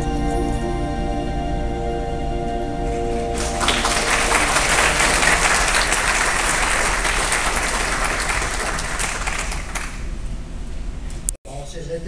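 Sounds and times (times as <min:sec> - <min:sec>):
music held notes: 0:00.0 - 0:06.4
audience applauding: 0:03.3 - 0:10.2.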